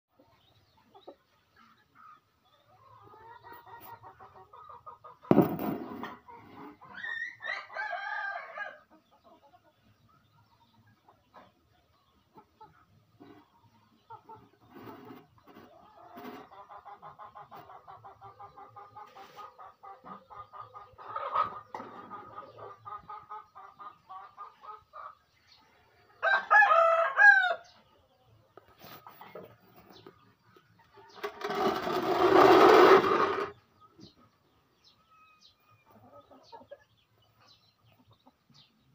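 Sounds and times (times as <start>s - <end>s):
chickens clucking: 0.1s - 38.9s
sharp knock: 5.3s - 6.1s
rooster crowing: 26.2s - 27.6s.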